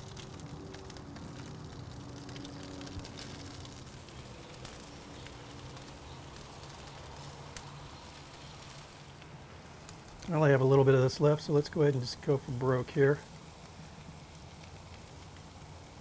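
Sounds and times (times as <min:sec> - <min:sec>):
meat sizzling on grill: 0:00.0 - 0:16.0.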